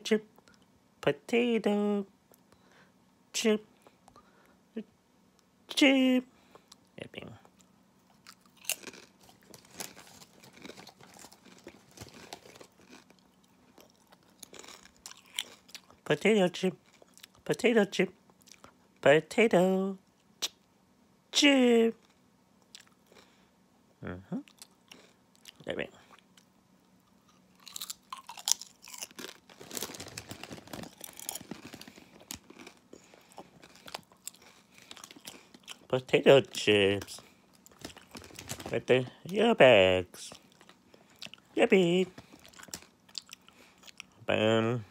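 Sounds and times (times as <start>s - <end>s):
faint steady hum: 0.0s - 44.9s
person chewing potato chips: 6.5s - 16.1s, 16.8s - 17.4s, 18.2s - 18.8s, 22.0s - 23.4s, 24.4s - 38.8s, 40.3s - 44.2s.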